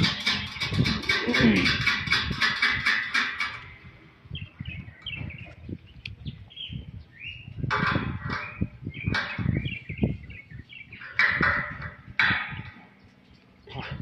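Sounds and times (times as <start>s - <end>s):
birds chirping: 3.6s - 14.0s.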